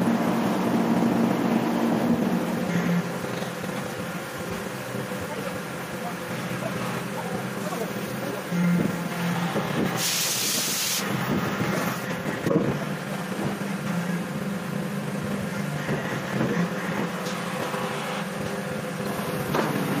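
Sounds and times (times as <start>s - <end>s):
hydraulic machinery humming: 0.0s - 20.0s
hydraulic hiss: 9.8s - 11.1s.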